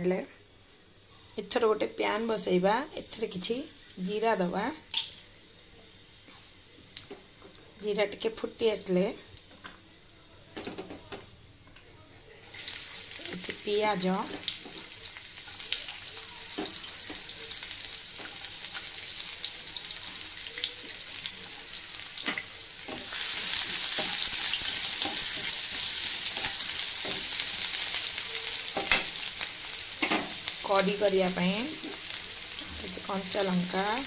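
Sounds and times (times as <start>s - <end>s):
onions sizzling in hot oil: 1.9s - 9.8s, 12.4s - 34.0s.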